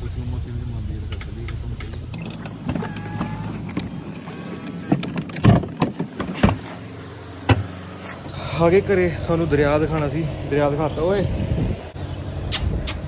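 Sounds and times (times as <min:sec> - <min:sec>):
car engine hum: 0:00.0 - 0:12.9
car doors clunking: 0:01.2 - 0:08.2.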